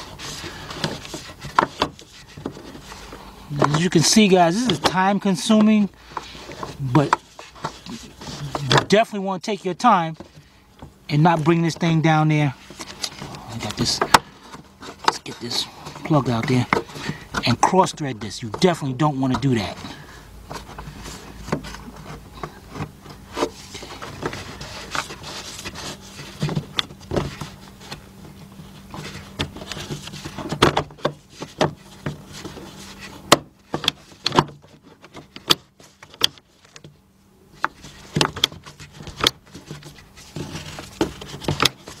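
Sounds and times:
plastic clicks knocks and scraping: 20.5s - 37.0s, 37.6s - 42.0s.

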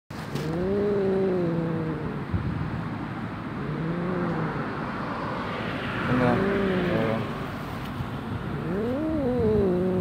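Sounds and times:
cat growling: 0.3s - 2.3s, 3.5s - 4.9s, 6.1s - 7.3s, 8.5s - 10.0s.

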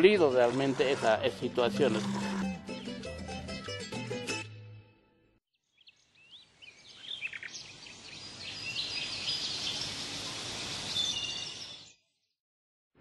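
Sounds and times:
birds chirping: 5.8s - 12.1s.

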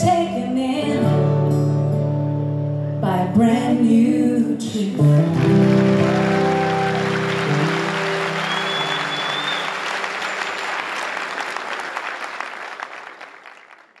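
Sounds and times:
audience clapping: 5.0s - 14.0s
short whistle: 8.3s - 9.9s.

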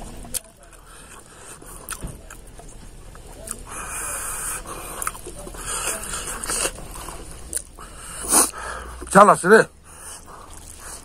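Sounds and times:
man chewing wetly: 0.0s - 9.1s, 9.7s - 11.0s
short hissing: 8.0s - 8.9s.

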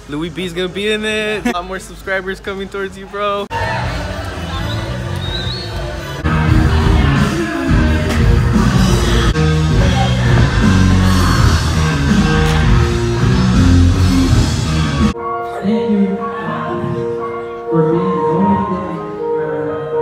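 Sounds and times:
loud rock music: 5.0s - 18.2s.

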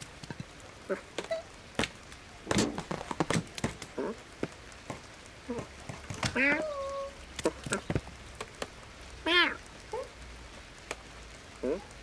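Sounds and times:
cartoon cat vocal noises: 6.3s - 7.8s, 9.2s - 10.1s.

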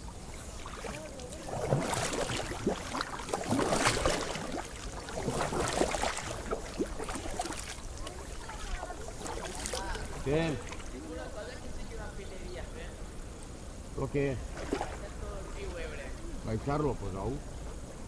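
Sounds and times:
paddle splashing in water: 0.0s - 11.4s, 14.5s - 15.8s.

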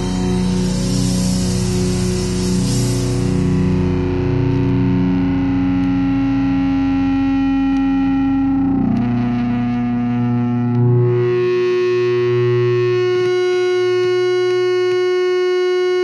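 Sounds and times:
distorted electric guitar chord: 0.0s - 16.0s.

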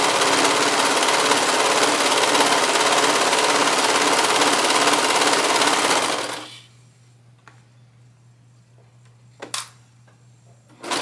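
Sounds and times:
serger machine stitching: 0.0s - 6.5s, 10.8s - 11.0s
faint hum: 6.3s - 10.8s.

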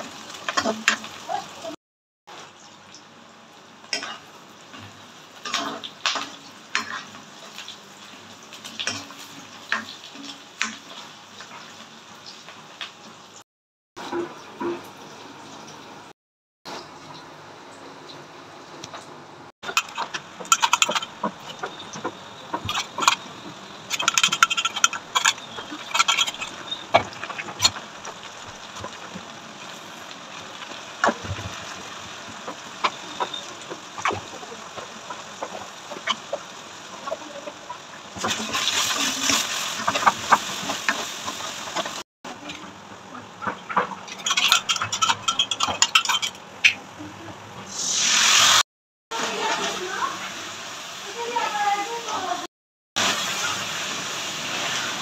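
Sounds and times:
oil sizzling in a pan: 0.0s - 13.4s, 19.6s - 55.0s
steel spatula scraping a pan: 19.6s - 29.1s, 32.8s - 36.4s, 38.2s - 42.6s, 43.4s - 46.4s.

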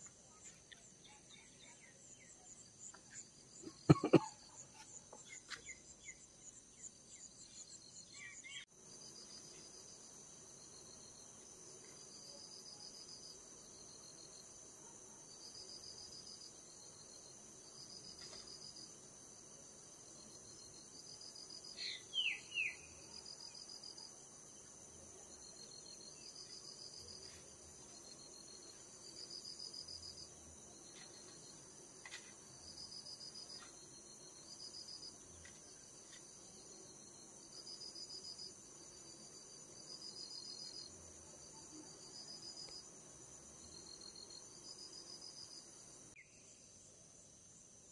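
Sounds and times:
crickets and insects trilling: 3.6s - 5.0s.

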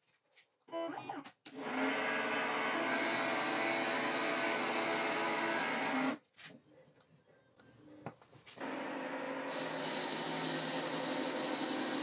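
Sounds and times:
lathe motor whine: 8.6s - 12.0s.

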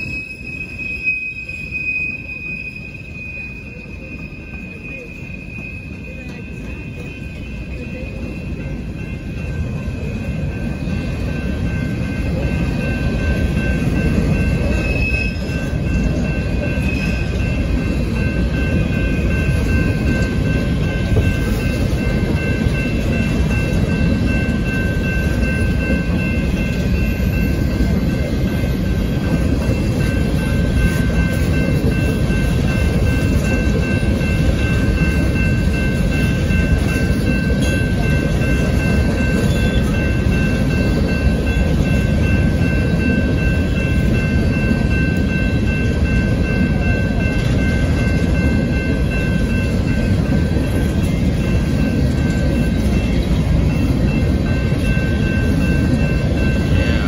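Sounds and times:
high-pitched wheel squeals: 0.0s - 8.4s, 14.7s - 15.6s
train wheels rumbling and clattering: 0.0s - 57.0s.

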